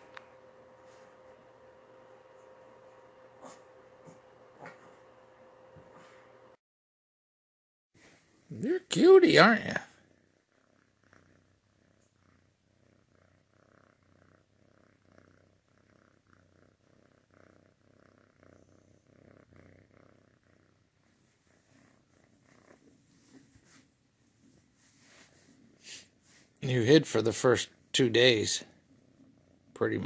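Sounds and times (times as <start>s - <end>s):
cat purring: 8.4s - 30.0s
soft rustles of hand on bedding: 22.4s - 26.6s.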